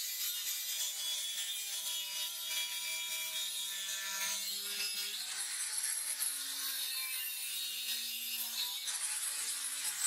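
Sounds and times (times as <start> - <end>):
angle grinder cutting metal: 0.0 - 10.0.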